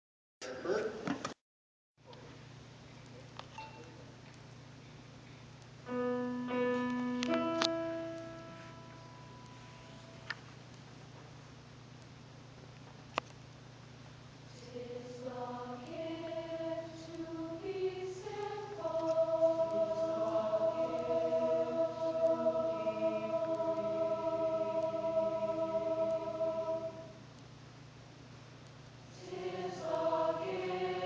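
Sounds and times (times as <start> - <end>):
choir singing sustained notes: 14.5 - 27.2, 29.1 - 31.0.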